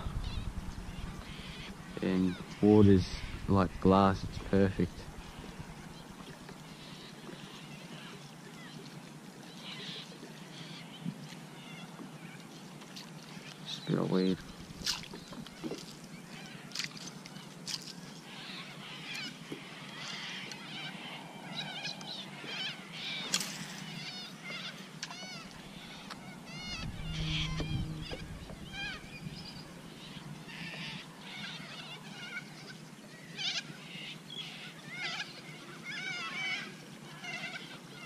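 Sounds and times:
low rumble: 0.0 - 6.3, 26.6 - 29.7
birds chirping and whistling: 25.3 - 30.1.

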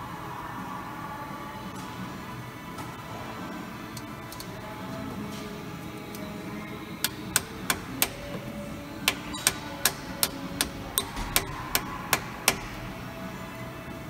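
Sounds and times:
hammer tapping on metal: 9.0 - 12.8.

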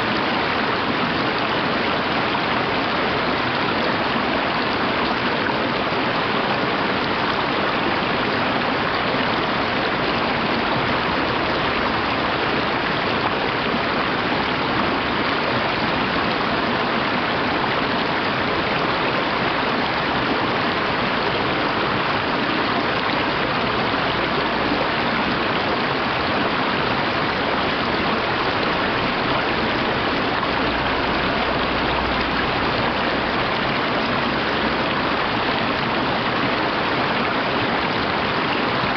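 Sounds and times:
stream rushing over rocks: 0.0 - 38.9.

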